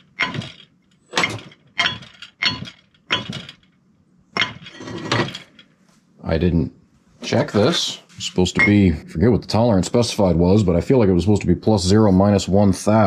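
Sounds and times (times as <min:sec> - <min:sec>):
steel link clanking against pin: 0:00.0 - 0:03.7.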